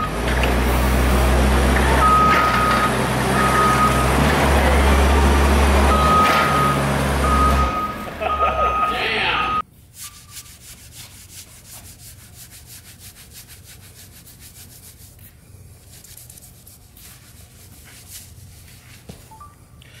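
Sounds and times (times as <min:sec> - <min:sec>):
cloth rag scrubbing floor: 0:09.9 - 0:19.4.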